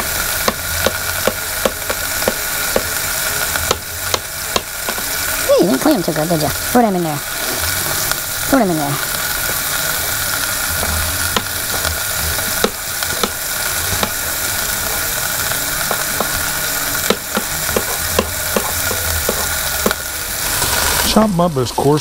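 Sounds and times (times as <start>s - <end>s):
meat sizzling in oil: 0.0s - 22.0s
knife chopping on plastic board: 0.4s - 3.0s, 3.6s - 5.0s, 10.8s - 12.0s, 12.6s - 14.2s, 17.1s - 20.0s.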